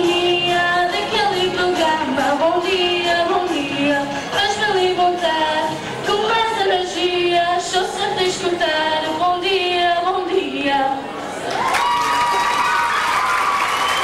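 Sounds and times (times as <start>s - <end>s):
woman singing into microphone: 0.0s - 11.2s.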